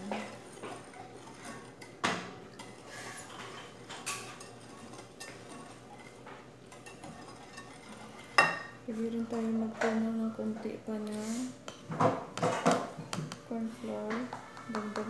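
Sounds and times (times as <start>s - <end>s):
whisk clinking against glass bowl: 4.0s - 8.8s.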